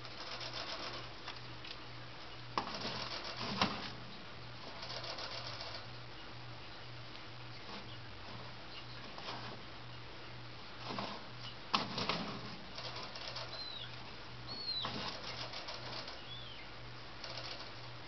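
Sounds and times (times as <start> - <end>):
steady low hum: 0.0 - 18.0
owl chirps high and falling: 13.5 - 13.9, 14.5 - 15.0.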